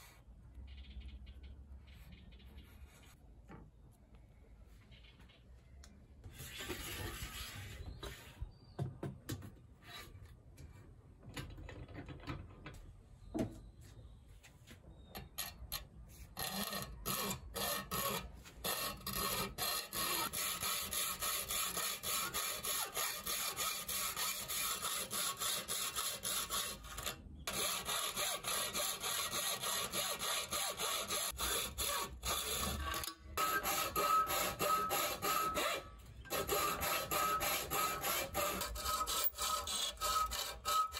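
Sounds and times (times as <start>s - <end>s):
hacksaw cutting metal: 15.3s - 40.9s.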